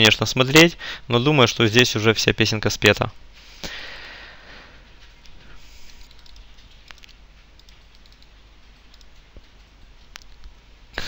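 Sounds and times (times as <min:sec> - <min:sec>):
computer mouse and keyboard clicks: 0:04.9 - 0:10.6.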